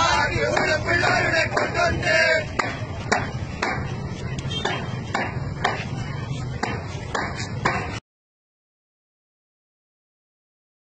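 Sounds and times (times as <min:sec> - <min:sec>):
hand claps keeping a beat: 0:00.0 - 0:05.9, 0:06.6 - 0:08.0
murmur of background voices: 0:00.0 - 0:08.0.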